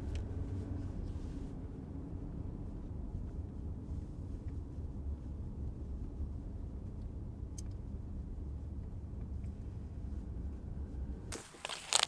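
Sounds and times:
car driving rumble inside cabin: 0:00.0 - 0:12.0.

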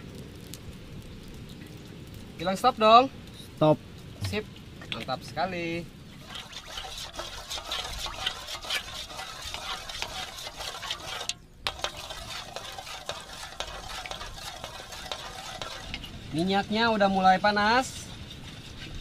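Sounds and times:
oil crackling and sizzling in a pan: 0:00.0 - 0:19.0.

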